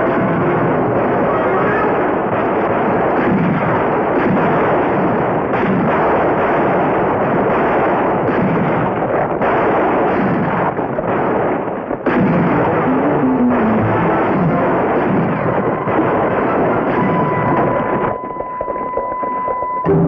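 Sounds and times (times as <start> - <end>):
pistol and rifle shots: 0.0 - 18.2.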